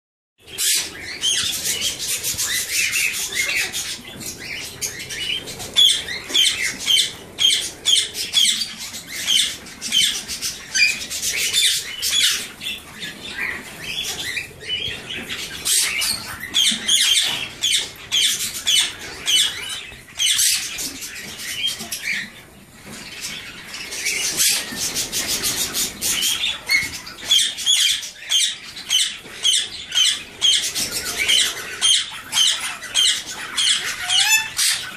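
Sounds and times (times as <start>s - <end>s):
parakeets squawking: 0.5s - 22.4s, 23.0s - 34.9s.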